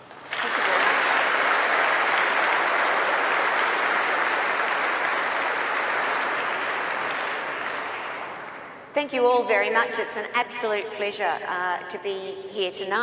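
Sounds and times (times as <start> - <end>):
large audience applauding: 0.0 - 8.8.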